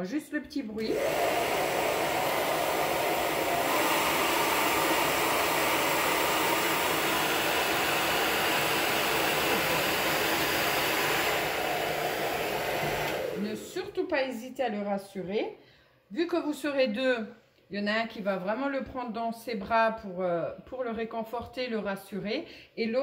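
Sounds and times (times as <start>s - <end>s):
hair dryer running: 0.8s - 13.8s.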